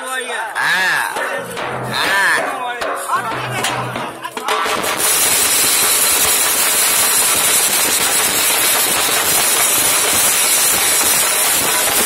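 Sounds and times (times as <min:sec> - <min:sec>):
large drums beaten with sticks: 0:01.1 - 0:12.0
steady high hiss: 0:02.8 - 0:12.0.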